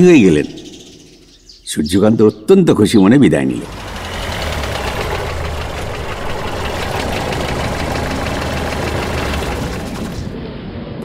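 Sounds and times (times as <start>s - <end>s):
vehicle engine idling: 3.6s - 10.4s.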